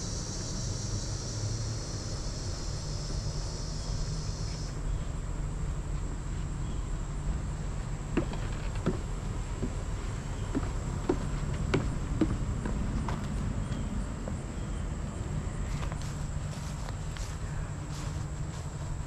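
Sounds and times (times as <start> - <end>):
high-pitched insect chorus: 0.0 - 19.0
footsteps on wooden boards: 7.6 - 13.5.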